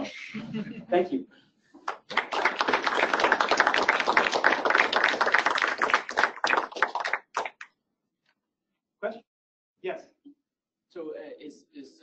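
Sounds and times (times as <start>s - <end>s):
audience applauding: 1.8s - 7.7s.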